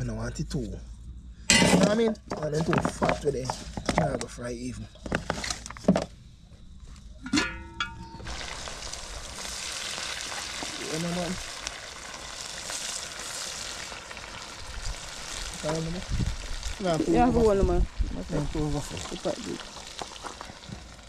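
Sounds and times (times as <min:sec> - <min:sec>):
potato wedges sizzling in oil: 0:08.0 - 0:21.0.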